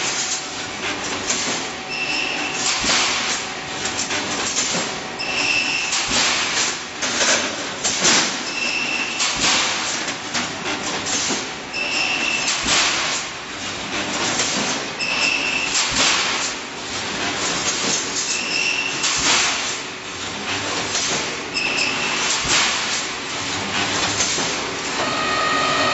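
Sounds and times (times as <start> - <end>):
welding machine high whine: 1.9 - 2.9, 5.2 - 6.2, 15.0 - 15.9, 21.5 - 22.5, 24.9 - 25.9.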